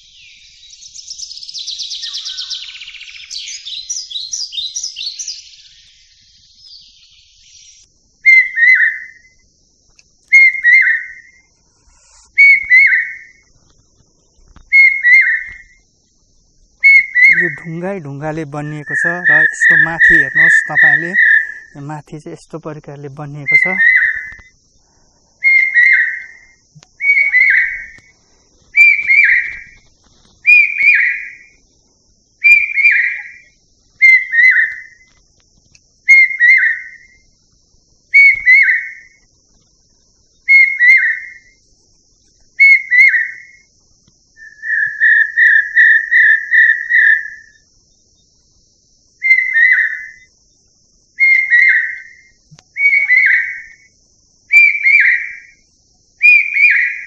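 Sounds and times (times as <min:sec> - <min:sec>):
faint high hiss: 0:00.0 - 0:39.2
loud whistled call: 0:07.7 - 0:09.3, 0:10.3 - 0:13.4, 0:14.7 - 0:15.7, 0:16.8 - 0:22.0, 0:23.1 - 0:24.5, 0:25.4 - 0:28.0, 0:28.8 - 0:29.8, 0:30.4 - 0:31.5, 0:32.4 - 0:35.0, 0:36.1 - 0:37.2, 0:38.2 - 0:39.2, 0:40.5 - 0:41.6, 0:42.6 - 0:43.7, 0:44.4 - 0:47.6, 0:49.2 - 0:50.3, 0:51.2 - 0:53.9, 0:54.5 - 0:55.6, 0:56.2 - 0:57.0.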